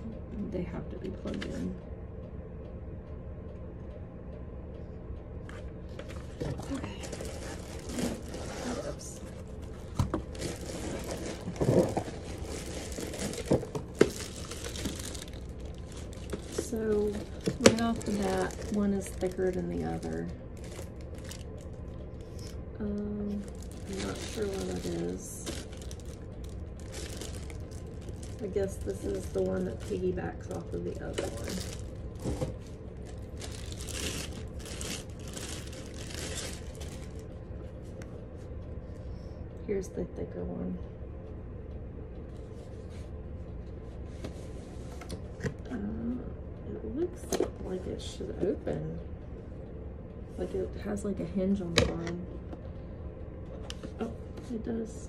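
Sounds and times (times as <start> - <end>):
steady low hum: 0.0 - 55.0
plastic wrapping crinkling: 6.0 - 22.6, 23.2 - 37.3.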